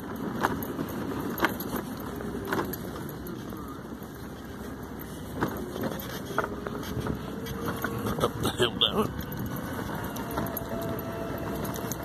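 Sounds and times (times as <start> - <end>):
jangling rattle: 0.0 - 12.0
scooter motor and tyre noise: 0.0 - 12.0.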